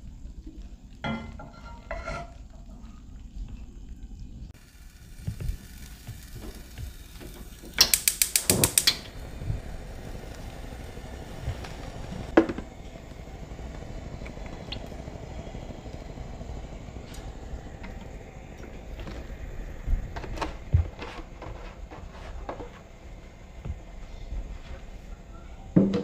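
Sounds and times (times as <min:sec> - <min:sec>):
low steady background noise: 0:00.0 - 0:26.0
ratcheting mechanical clicks: 0:07.7 - 0:09.1.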